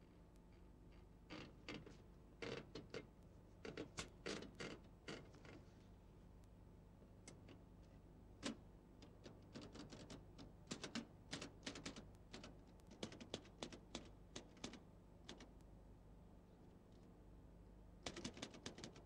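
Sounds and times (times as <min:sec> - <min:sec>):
typewriter keys clacking: 0:09.5 - 0:15.4, 0:18.0 - 0:19.0.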